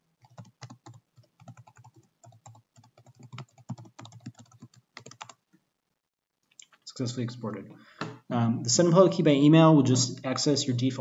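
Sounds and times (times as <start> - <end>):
computer keyboard typing: 0.2 - 5.4.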